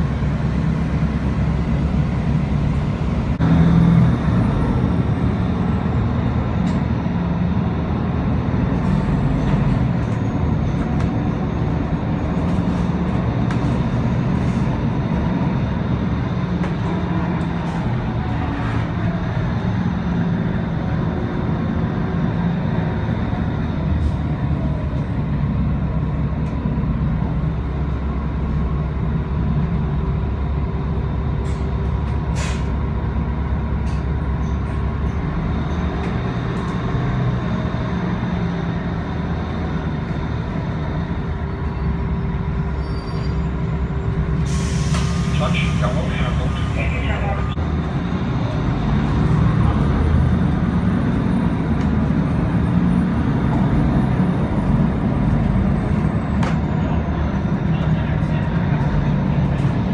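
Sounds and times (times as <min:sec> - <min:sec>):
bus engine drone: 0:00.0 - 0:59.9.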